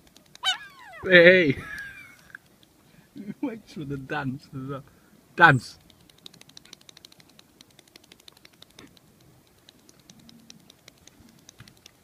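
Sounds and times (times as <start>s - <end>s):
bird feet pattering on asphalt: 5.8s - 12.0s.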